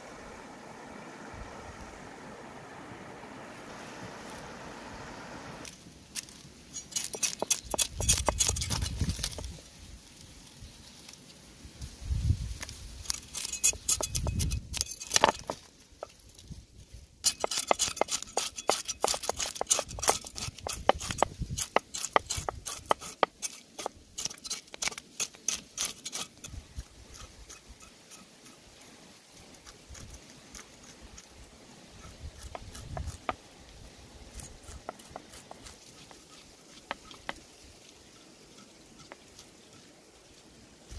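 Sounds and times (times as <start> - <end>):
cleaver scraping fish scales: 5.6 - 9.6, 13.0 - 16.2, 17.2 - 40.9.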